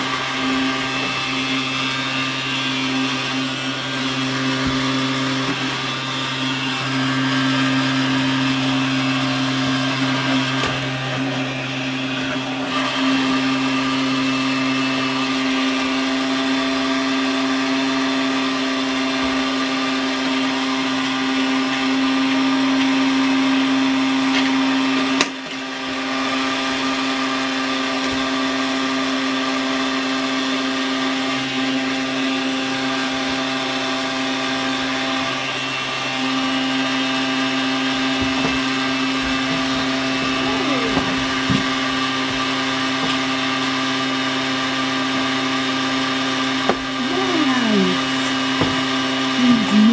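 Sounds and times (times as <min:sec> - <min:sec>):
vacuum cleaner running: 0:00.0 - 0:49.9.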